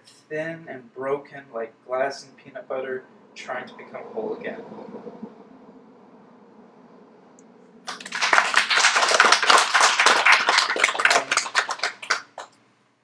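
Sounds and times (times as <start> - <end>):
audience clapping: 7.8 - 12.6.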